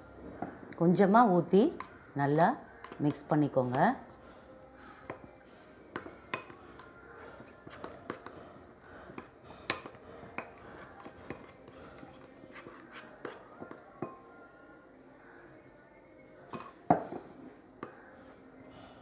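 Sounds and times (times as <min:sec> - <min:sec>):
spoon clinking on glass bowl: 0:06.0 - 0:07.0, 0:16.5 - 0:17.2
spoon scraping paste: 0:06.2 - 0:08.5, 0:09.1 - 0:13.9.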